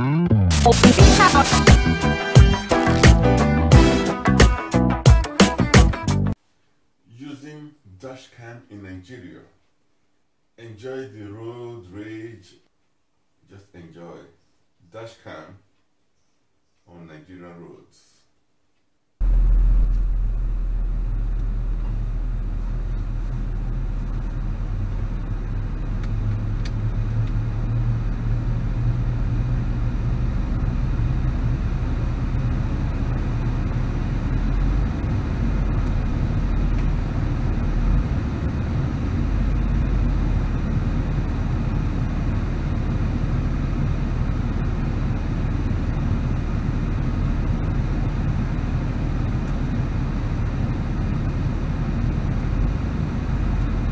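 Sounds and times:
car engine and tyres rumbling: 19.2 - 53.9.

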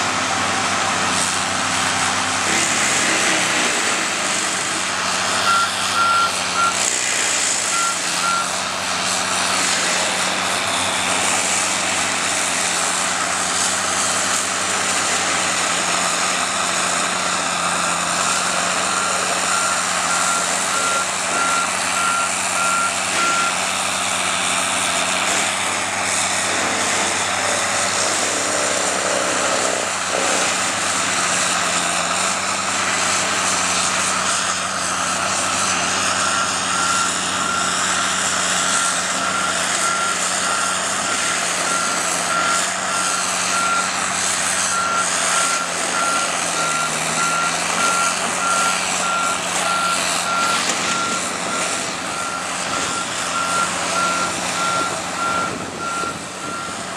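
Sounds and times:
mulcher running under load: 0.0 - 56.9
reversing alarm beeps: 5.3 - 8.6, 17.6 - 23.7, 34.0 - 44.0, 44.6 - 56.9.

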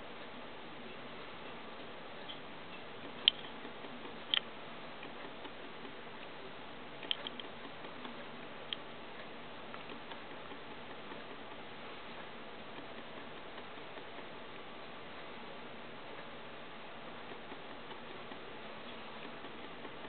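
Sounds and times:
steady low hiss: 0.0 - 20.0
sharp clicks: 3.0 - 6.4, 7.0 - 14.8, 17.1 - 20.0.

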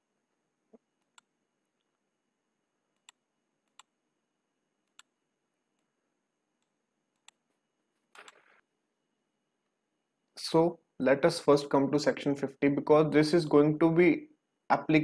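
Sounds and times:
computer mouse clicking: 1.0 - 1.9, 2.9 - 3.9, 4.8 - 5.1, 6.6 - 7.4, 8.1 - 8.6.

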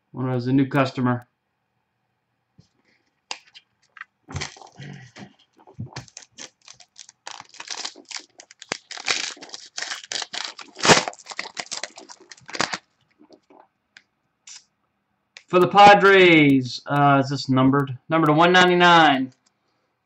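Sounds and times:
foil pack tearing and crinkling: 3.3 - 4.8, 5.9 - 12.9.

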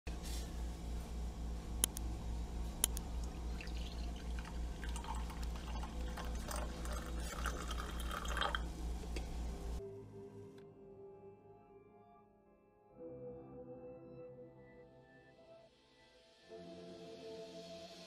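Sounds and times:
coffee machine pump hum: 0.1 - 9.8
sharp clicks: 1.8 - 2.1
coffee pouring into mug: 3.2 - 9.3.

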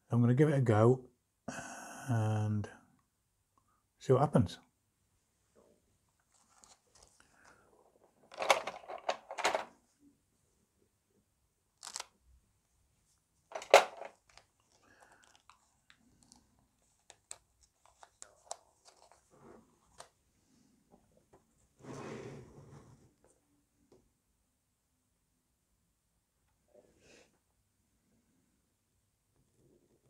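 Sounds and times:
plastic bag crinkling: 11.8 - 12.1, 13.5 - 19.2.

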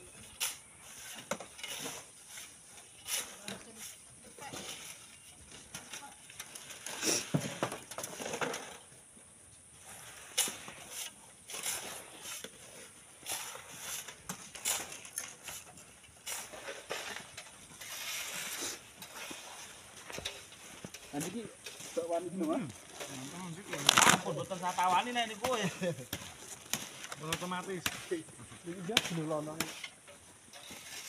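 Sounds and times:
digging in wet sand and stones: 9.8 - 31.0.

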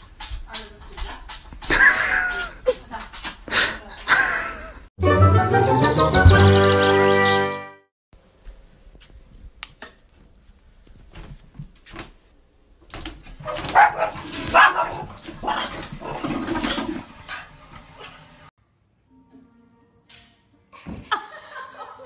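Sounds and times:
dog barking: 13.4 - 15.6.

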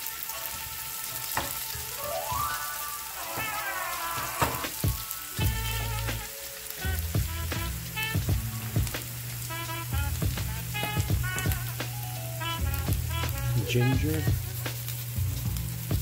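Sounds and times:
background music: 0.0 - 16.0
onion sizzling in oil: 0.0 - 16.0
wooden spoon knocking pan: 1.3 - 1.9, 4.2 - 4.9.

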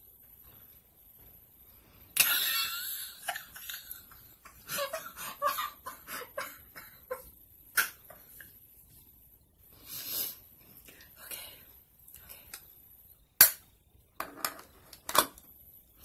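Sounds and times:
woman's stifled laughter: 2.2 - 7.3.

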